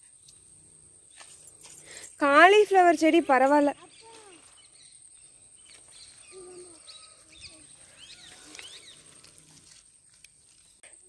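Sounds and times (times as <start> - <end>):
bird chirps: 3.7 - 9.4.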